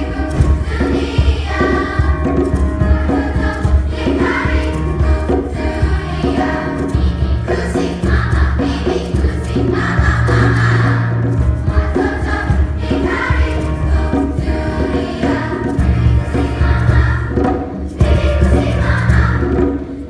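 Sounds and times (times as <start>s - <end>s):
children's choir singing: 0.0s - 20.0s.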